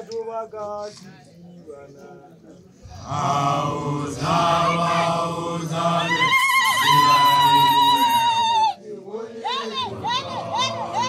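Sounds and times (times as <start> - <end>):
voices chanting together: 2.8 - 11.0.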